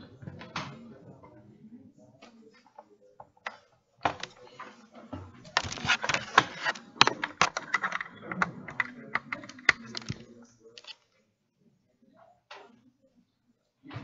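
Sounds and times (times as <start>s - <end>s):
computer keyboard clicking: 5.6s - 10.2s.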